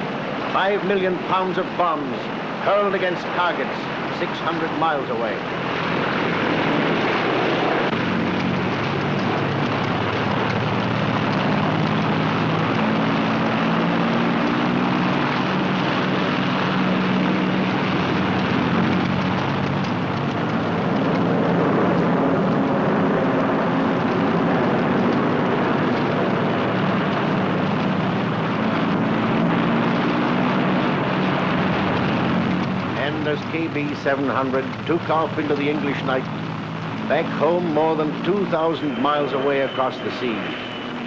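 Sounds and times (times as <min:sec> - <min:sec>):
propeller engines droning: 0:00.0 - 0:41.0.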